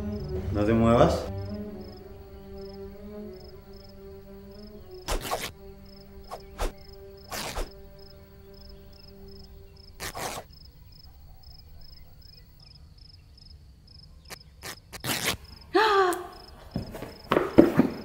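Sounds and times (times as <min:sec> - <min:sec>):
held musical note: 0:00.0 - 0:10.1
crickets chirping: 0:00.0 - 0:18.0
short whooshing bursts: 0:06.3 - 0:07.7.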